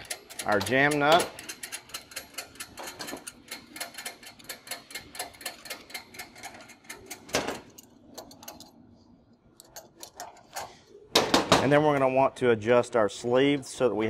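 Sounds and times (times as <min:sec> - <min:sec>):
ratchet wrench clicking: 0:00.0 - 0:07.2.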